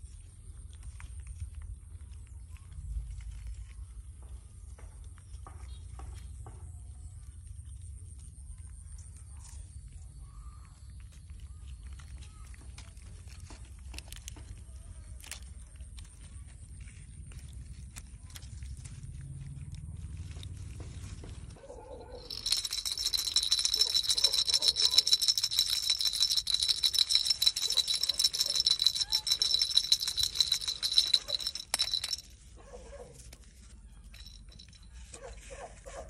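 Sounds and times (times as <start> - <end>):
toy rattle shaken rapidly: 22.0 - 32.5, 34.0 - 35.4.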